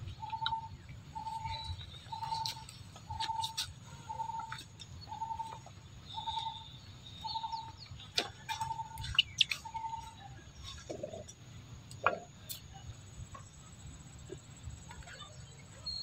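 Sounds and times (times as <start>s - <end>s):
bird repeating low note: 0.0s - 7.9s
sharp bird chirps: 0.0s - 10.2s.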